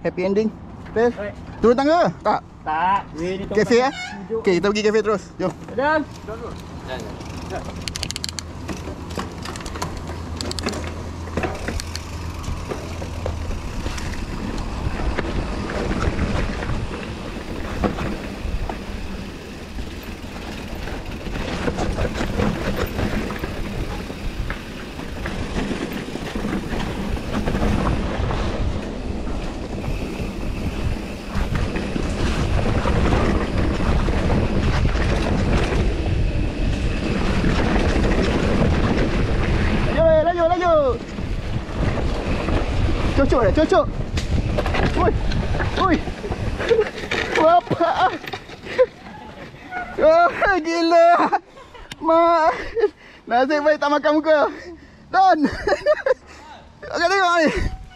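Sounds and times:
bike tyres on dirt: 3.2 - 51.2, 57.0 - 57.9
bike rattling and knocking: 3.2 - 51.4
wind buffeting microphone: 6.7 - 47.4.

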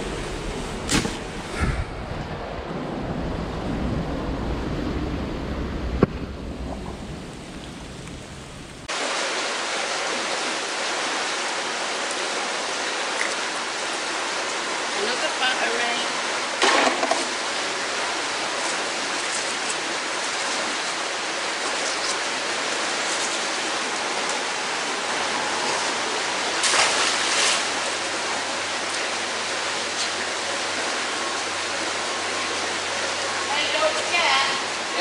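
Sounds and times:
magnet splashing into water: 0.9 - 1.6, 26.6 - 27.7
flowing water rushing: 5.6 - 35.0.

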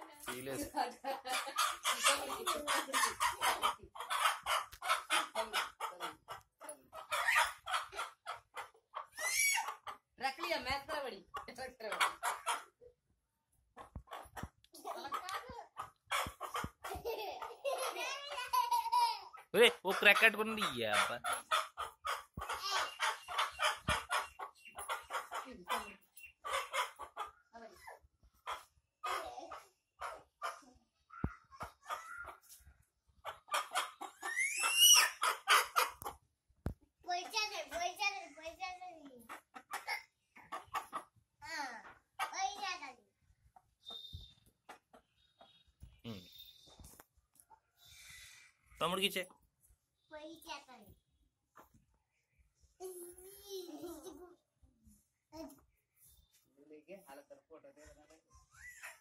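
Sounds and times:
hen clucking: 0.2 - 12.8, 13.8 - 18.8, 19.6 - 27.5, 28.4 - 36.2, 39.2 - 41.2, 43.8 - 47.0
hen squawking: 33.5 - 36.0.

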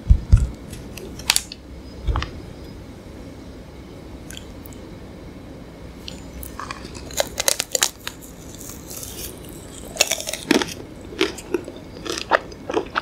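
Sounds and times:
chewing: 6.1 - 13.0
crunching bites into ice cream bar: 6.1 - 13.0.

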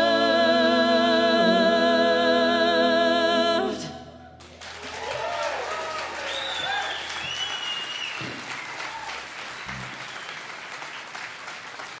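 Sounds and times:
audience applauding and cheering: 4.4 - 12.0
high whoops: 4.8 - 9.3.

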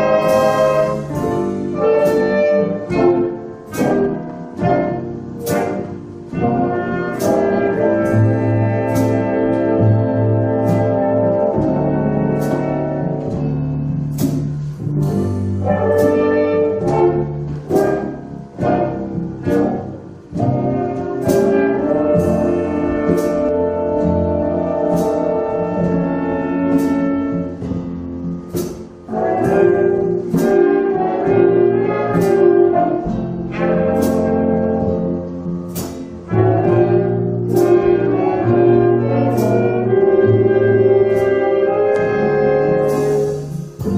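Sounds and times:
sharp percussive strokes: 0.0 - 10.0, 10.6 - 27.7, 33.5 - 38.2
muted trumpets and trombones: 0.0 - 13.5, 15.5 - 27.9, 28.5 - 43.9
big band jazz: 0.0 - 43.9
upright bass: 0.0 - 43.9.

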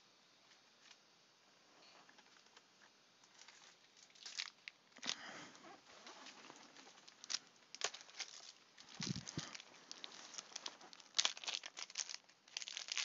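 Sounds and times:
crinkling of foil wrappers: 3.2 - 13.0.

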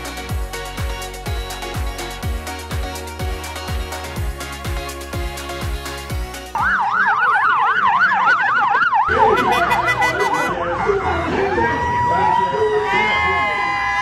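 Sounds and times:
police siren yelping: 6.5 - 14.0.

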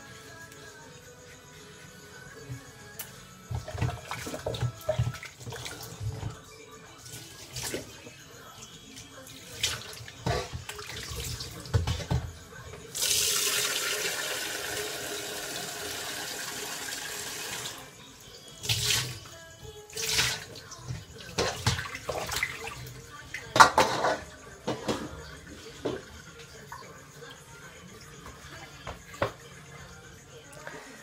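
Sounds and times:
dishes clattering: 10.2 - 10.8, 21.3 - 22.4, 23.5 - 26.0.

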